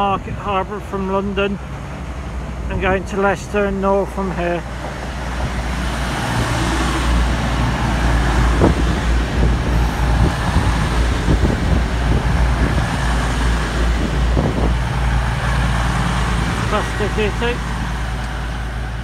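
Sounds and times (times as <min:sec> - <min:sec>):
train rumbling past: 0:00.0 - 0:19.0.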